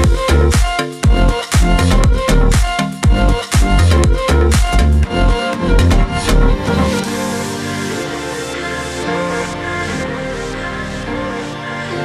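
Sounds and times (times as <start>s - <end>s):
electronic music with bass beat: 0.0s - 12.0s.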